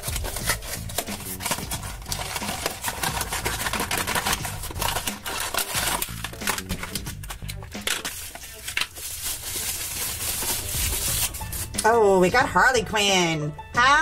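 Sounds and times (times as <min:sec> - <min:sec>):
cardboard flaps crackling and scraping: 0:00.0 - 0:07.4
paper tearing: 0:00.0 - 0:11.8.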